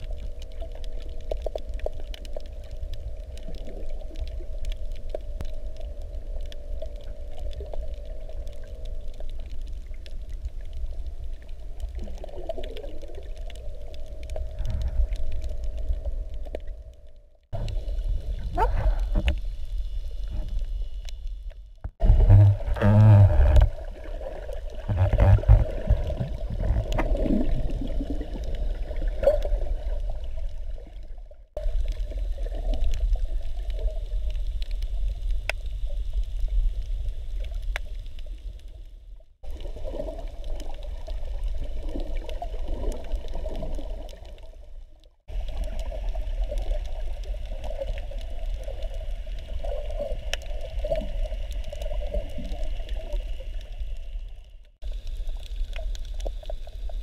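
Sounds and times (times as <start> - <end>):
underwater rumble of moving water: 0.0 - 57.0
faint sharp clicks: 34.6 - 35.7.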